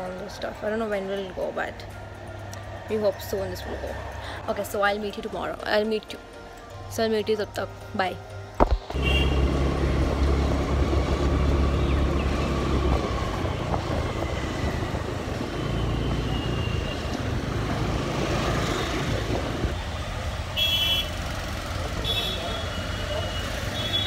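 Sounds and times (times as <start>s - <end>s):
road traffic: 0.0s - 24.0s
wind rumbling on microphone: 10.2s - 15.4s.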